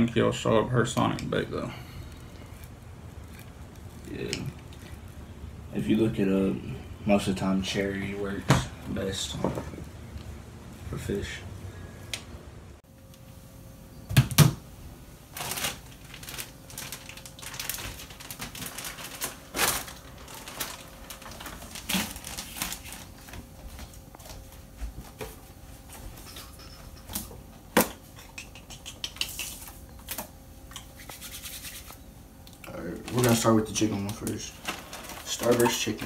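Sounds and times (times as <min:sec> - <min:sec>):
plastic zip bags rustling: 0:15.2 - 0:24.4, 0:32.8 - 0:36.0
items handled at kitchen counter: 0:29.1 - 0:36.0.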